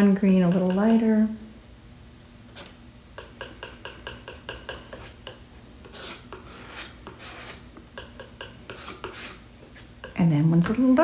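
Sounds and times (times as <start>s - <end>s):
paint scraping on paper: 3.4s - 10.2s.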